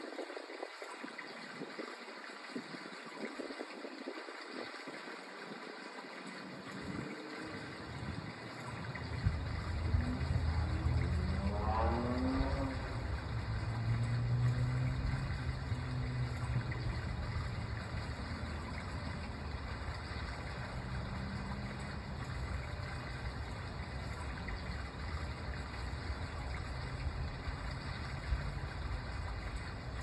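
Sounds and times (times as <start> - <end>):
low hum: 6.6 - 30.0.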